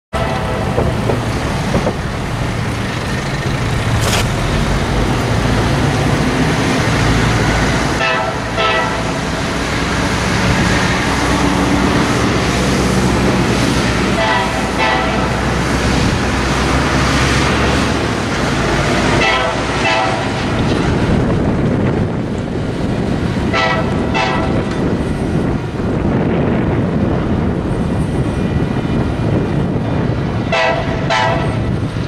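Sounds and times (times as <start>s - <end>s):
diesel trucks passing: 0.1s - 32.0s
truck horn short blasts: 8.0s - 9.0s, 30.5s - 31.5s.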